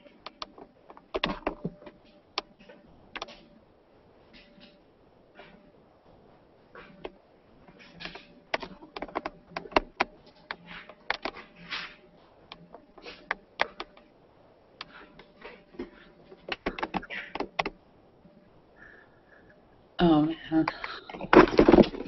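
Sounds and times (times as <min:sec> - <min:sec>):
clicks and knocks of handling: 0:00.0 - 0:03.6, 0:06.8 - 0:14.1, 0:14.8 - 0:17.8.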